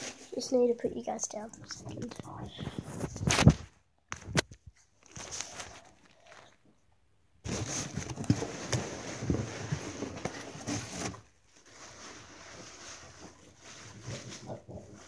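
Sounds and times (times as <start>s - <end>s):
muffled rustling handling noise: 0.0s - 6.7s.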